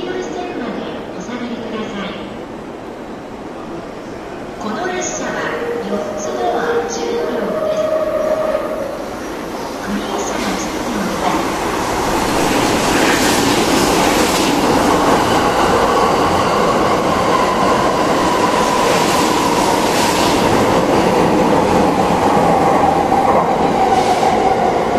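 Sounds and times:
train wheels on rail: 5.4 - 24.9.

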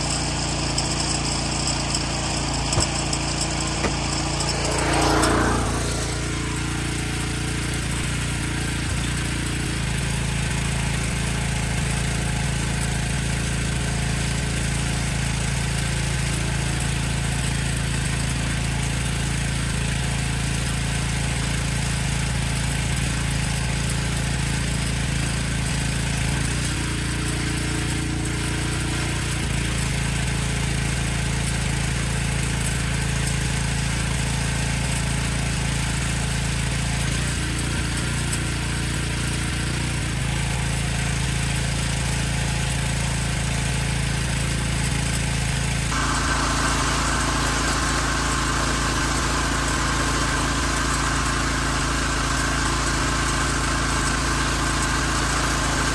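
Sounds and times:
pressure washer engine hum: 0.0 - 20.5, 24.0 - 55.9.

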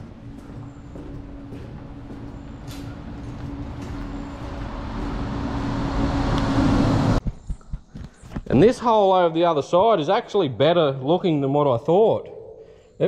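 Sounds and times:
vehicle engine and tyre noise: 0.0 - 8.0.

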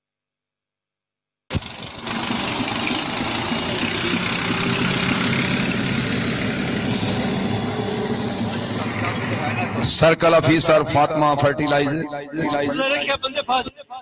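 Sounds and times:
engine idling hum: 1.5 - 10.0
outdoor noise: 1.5 - 14.0.

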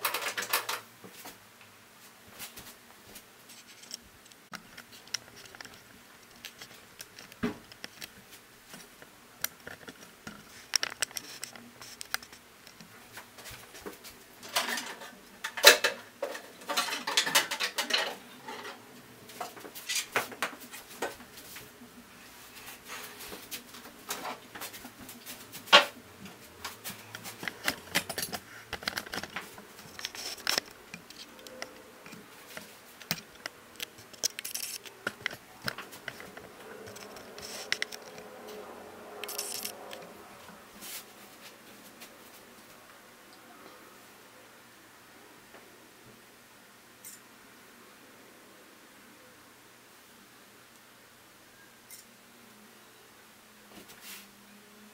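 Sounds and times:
plastic and metal parts rattling: 0.0 - 0.9, 14.4 - 18.8, 27.1 - 31.8, 32.5 - 38.2, 39.2 - 39.7.

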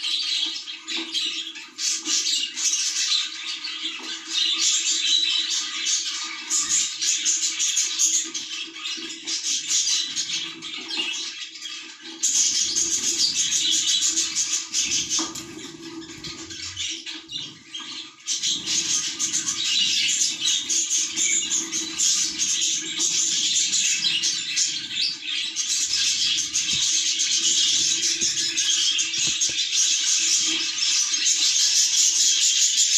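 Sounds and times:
budgerigars chattering and chirping: 0.0 - 32.9.

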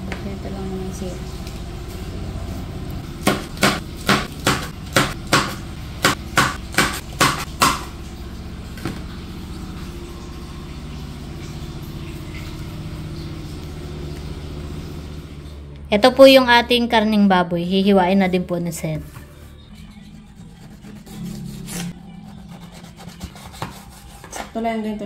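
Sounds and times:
knife chopping on wooden board: 3.2 - 7.9.

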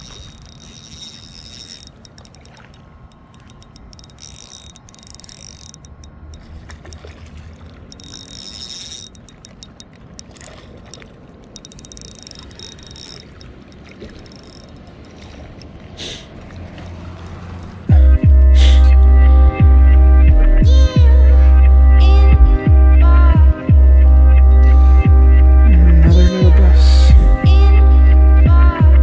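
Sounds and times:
spinning reel whirring: 0.0 - 15.4
fine clicks: 0.0 - 15.7
low rumble: 17.6 - 29.0.

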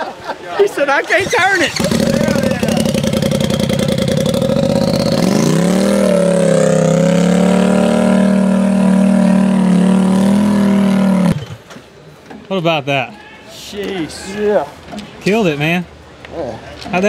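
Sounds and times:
buggy engine revving: 1.1 - 11.7.

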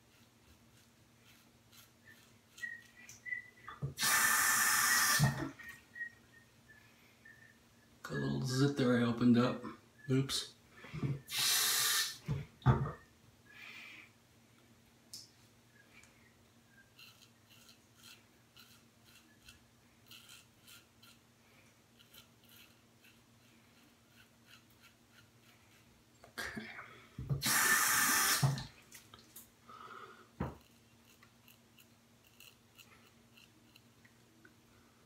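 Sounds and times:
razor scraping stubble: 0.0 - 5.4, 16.8 - 21.3, 21.9 - 26.0, 30.5 - 34.0
sink tap running: 27.3 - 28.6.

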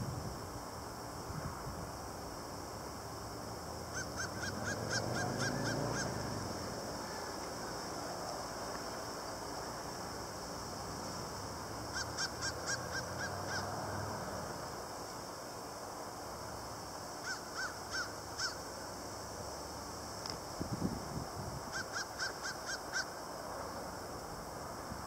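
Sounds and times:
steady outdoor hiss: 0.0 - 25.0.

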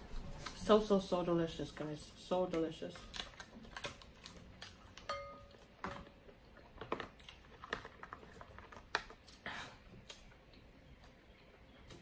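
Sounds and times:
close-miked eating: 2.9 - 12.0.

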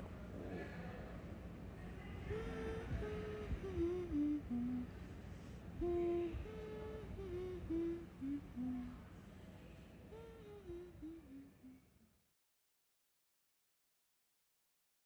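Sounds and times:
woman humming a slow tune: 2.2 - 5.1, 5.8 - 9.1, 10.1 - 12.1.

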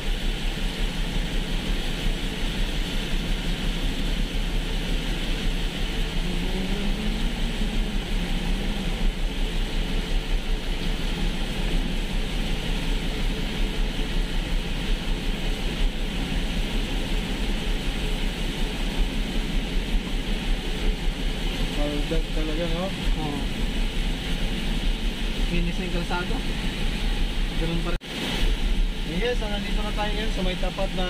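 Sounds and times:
low engine and road rumble: 0.0 - 31.0
tyres hissing on wet pavement: 0.0 - 31.0.

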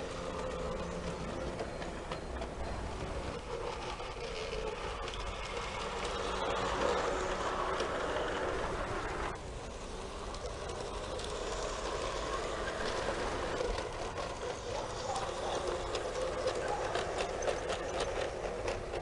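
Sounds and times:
model train motor hum: 0.0 - 19.0
wheels clicking on rails: 0.0 - 19.0.

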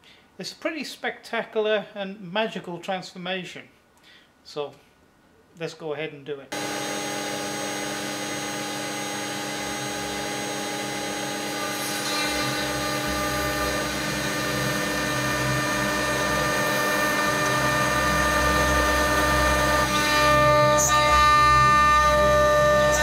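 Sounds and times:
router spindle whine: 6.5 - 23.0
low rumble of cutting: 6.6 - 23.0.

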